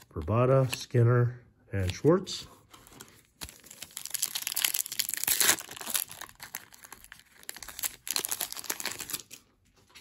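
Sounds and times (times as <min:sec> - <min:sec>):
wrapper crinkling and tearing: 0:03.0 - 0:10.0.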